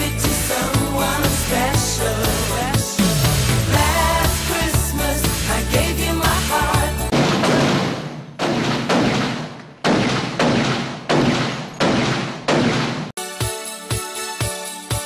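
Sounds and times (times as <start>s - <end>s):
music: 0.0s - 7.1s, 13.2s - 15.0s
echoing gunshots: 7.1s - 13.2s.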